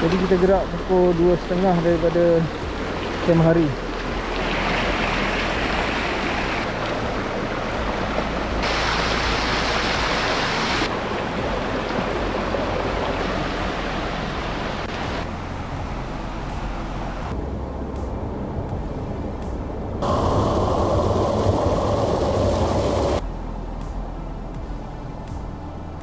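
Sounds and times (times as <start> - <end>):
mountain stream flowing: 0.0 - 17.4, 20.0 - 23.2.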